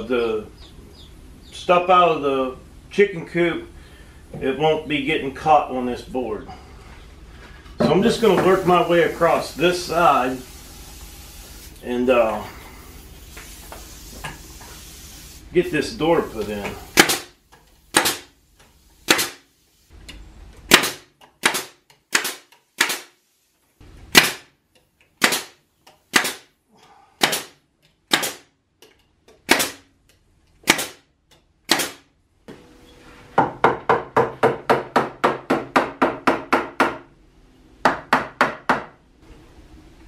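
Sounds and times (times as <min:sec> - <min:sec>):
nail gun firing into wood: 0:16.9 - 0:17.3, 0:17.9 - 0:18.3, 0:19.1 - 0:19.4, 0:20.7 - 0:23.2, 0:24.1 - 0:24.5, 0:25.2 - 0:26.5, 0:27.2 - 0:28.5, 0:29.4 - 0:29.9, 0:30.6 - 0:31.1, 0:31.7 - 0:32.1.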